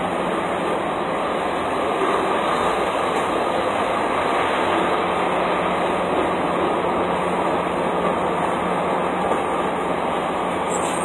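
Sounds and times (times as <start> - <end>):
steady mechanical drone: 0.0 - 11.0.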